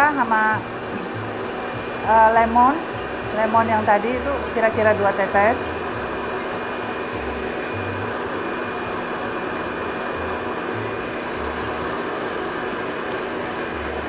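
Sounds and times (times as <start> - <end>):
blender motor whirring: 0.0 - 14.0.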